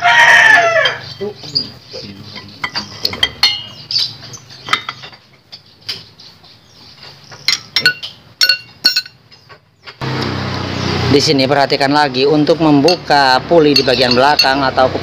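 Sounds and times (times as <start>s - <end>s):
metal tools clinking: 2.3s - 6.0s, 7.0s - 9.6s, 12.7s - 15.0s.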